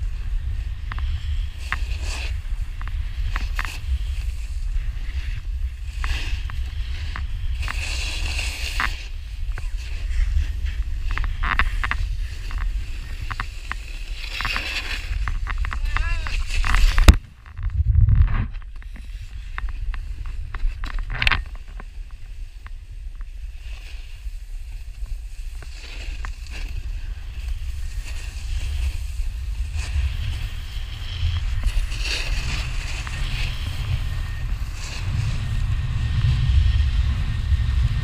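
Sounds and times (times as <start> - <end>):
snowboard scraping over snow: 0.0 - 38.0
wind buffeting microphone: 14.8 - 23.6, 26.8 - 38.0.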